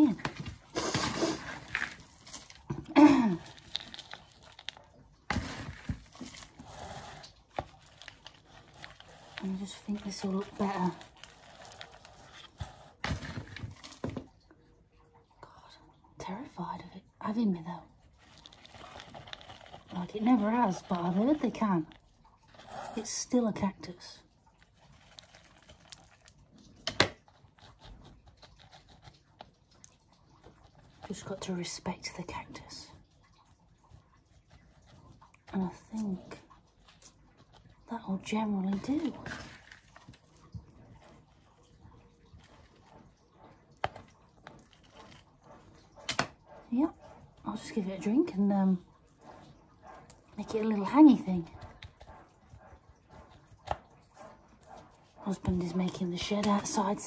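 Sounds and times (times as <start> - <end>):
soil rustling and crunching: 1.2 - 14.2, 18.0 - 23.1, 24.6 - 26.9.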